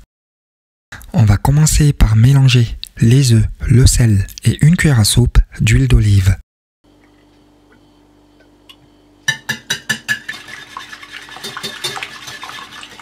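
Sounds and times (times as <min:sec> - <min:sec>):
whisk clinking on plate: 0:09.3 - 0:13.0
whisk beating eggs: 0:09.9 - 0:13.0.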